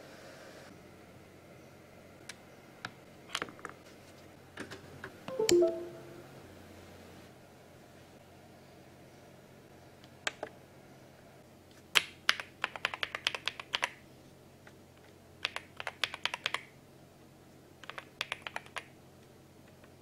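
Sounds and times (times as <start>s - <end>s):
mechanical keyboard typing: 12.3s - 13.9s, 15.4s - 16.7s, 17.8s - 18.9s.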